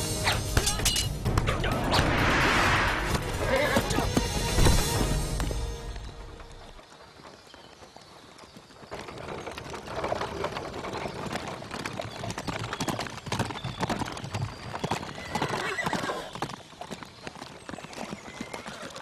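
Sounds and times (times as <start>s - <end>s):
horses galloping on dirt: 3.2s - 19.0s
horse whinnying: 3.3s - 4.1s, 15.2s - 16.3s.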